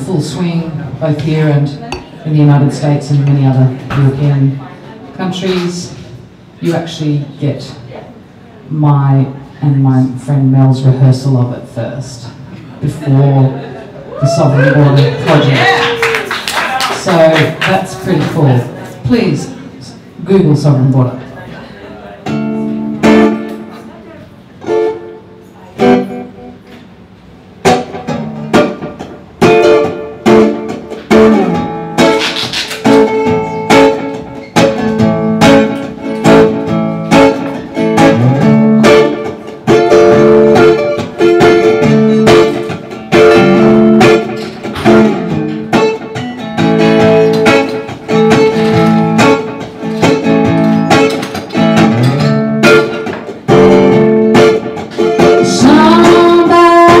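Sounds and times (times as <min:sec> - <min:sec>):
electric guitar strumming: 0:22.2 - 0:57.0.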